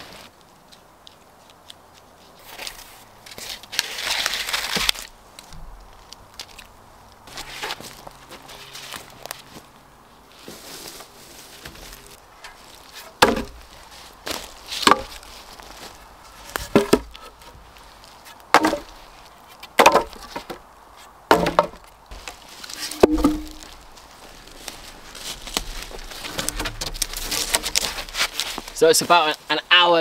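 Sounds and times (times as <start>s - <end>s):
wooden poles knocking: 11.6s - 15.3s, 16.4s - 19.0s, 19.6s - 20.7s, 21.3s - 28.8s.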